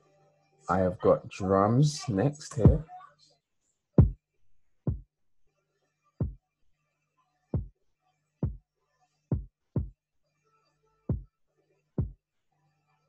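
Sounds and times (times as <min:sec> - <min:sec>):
deep electronic kick drum: 0:02.6 - 0:02.8, 0:09.3 - 0:09.9.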